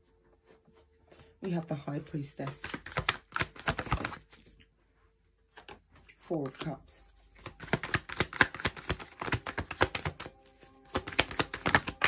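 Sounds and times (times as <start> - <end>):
cards being shuffled: 2.3 - 4.7, 5.5 - 12.0.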